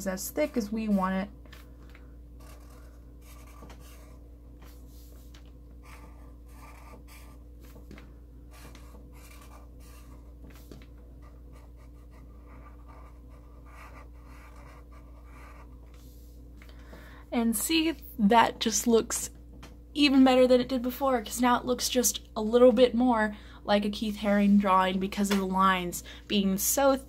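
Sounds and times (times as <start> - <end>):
steady low hum: 0.0 - 27.0
marker drawing on paper: 2.4 - 7.9, 8.5 - 16.3.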